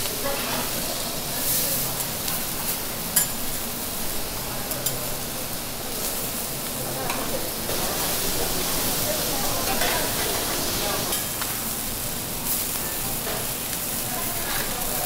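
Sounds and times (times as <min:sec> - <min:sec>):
fish sizzling on griddle: 0:00.0 - 0:15.0.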